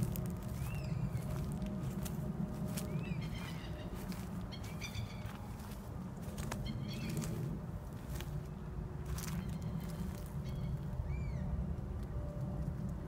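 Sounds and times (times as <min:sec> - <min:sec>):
birds chirping: 0:00.0 - 0:11.5
steady low rumble: 0:00.0 - 0:13.0.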